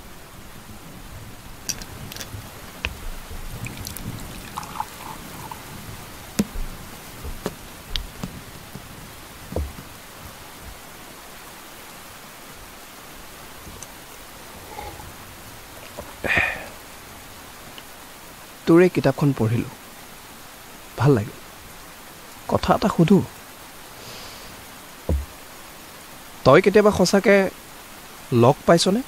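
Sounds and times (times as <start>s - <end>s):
steady rain hiss: 0.0s - 29.0s
glass bottles clinking: 3.6s - 5.8s.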